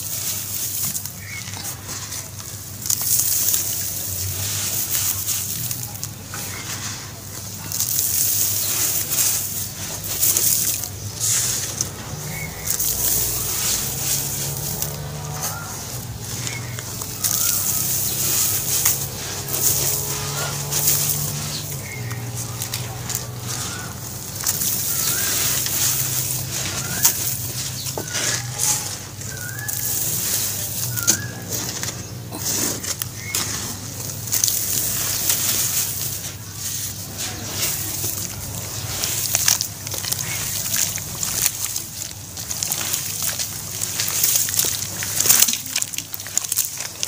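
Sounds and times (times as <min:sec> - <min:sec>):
ash crunching and pattering in water: 0:00.0 - 0:47.0
bird chirping: 0:05.1 - 0:39.2.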